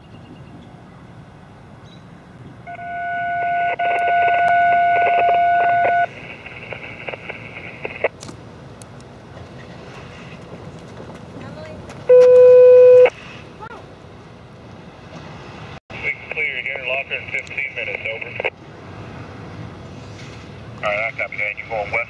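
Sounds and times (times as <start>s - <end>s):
train air horn blasts: 2.7s - 5.9s.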